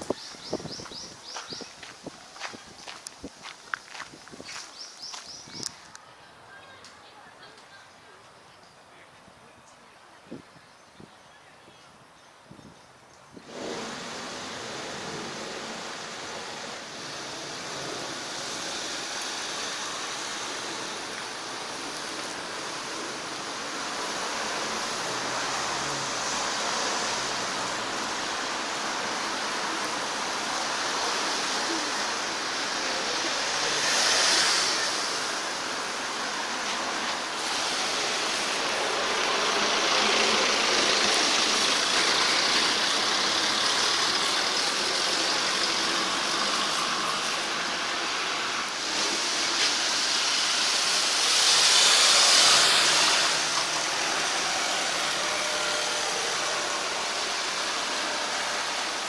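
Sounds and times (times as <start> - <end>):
rushing road noise: 0.0 - 6.8, 13.3 - 59.0.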